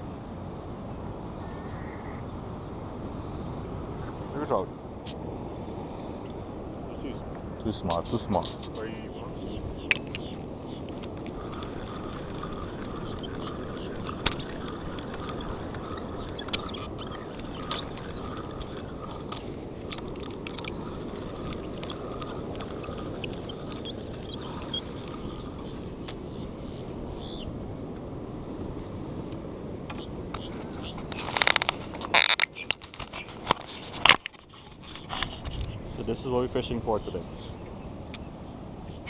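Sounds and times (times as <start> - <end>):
wind: 0.0 - 39.0
sea noise: 9.4 - 28.8.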